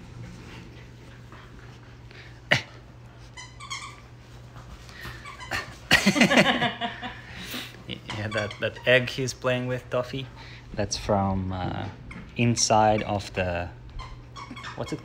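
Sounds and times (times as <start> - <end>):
dog whining: 14.0 - 15.0.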